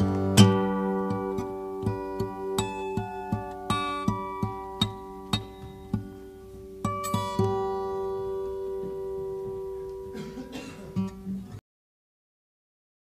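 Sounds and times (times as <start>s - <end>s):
plucked guitar notes: 0.0s - 11.6s.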